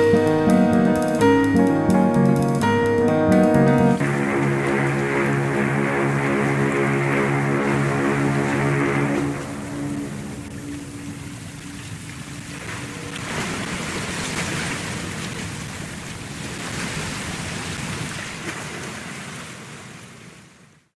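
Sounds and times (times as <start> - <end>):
low held musical tones: 0.0 - 13.2
rushing water: 0.0 - 20.9.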